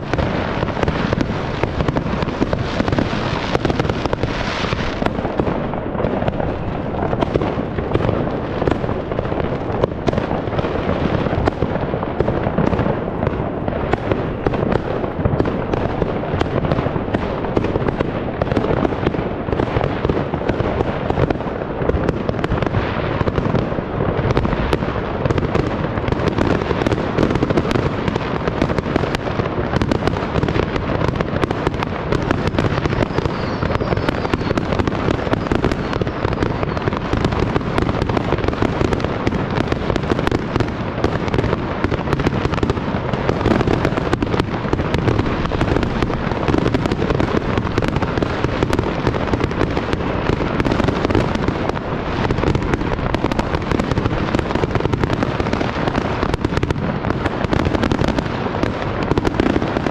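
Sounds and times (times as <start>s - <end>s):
fireworks bangs and crackles: 0.0s - 59.9s.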